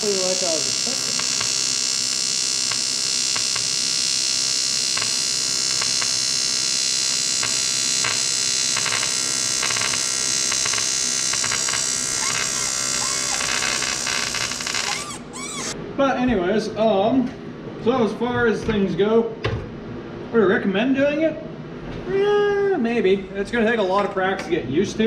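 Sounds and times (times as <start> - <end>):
welding arc buzzing and hissing: 0.0 - 15.8
welding arc crackles: 0.0 - 15.8.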